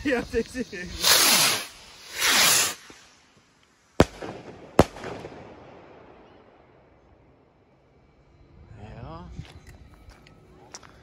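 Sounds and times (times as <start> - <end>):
rocket launch whoosh: 0.9 - 3.2
firework bangs with echo: 4.0 - 5.6.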